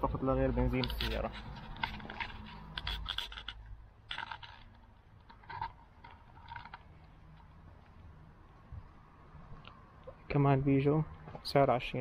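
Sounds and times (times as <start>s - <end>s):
faint scrapes and scuffs: 0.5s - 3.5s.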